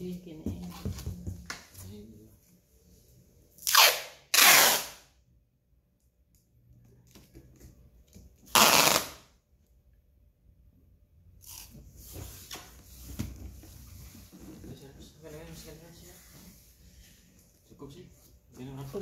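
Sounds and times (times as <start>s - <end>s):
packing tape ripping off roll: 3.6s - 5.0s, 8.5s - 9.3s.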